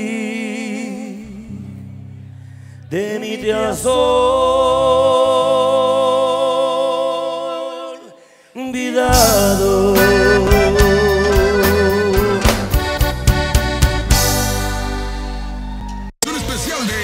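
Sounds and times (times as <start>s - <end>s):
man singing with vibrato: 0.0s - 1.6s, 2.9s - 12.7s
bass: 0.0s - 7.2s, 9.0s - 17.0s
accordion: 9.4s - 15.8s.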